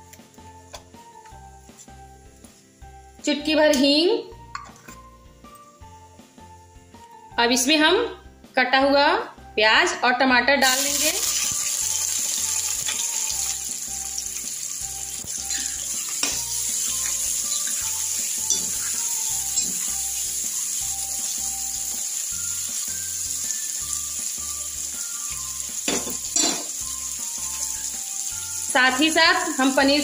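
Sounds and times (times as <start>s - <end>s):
vegetables sizzling in oil: 10.6s - 30.0s.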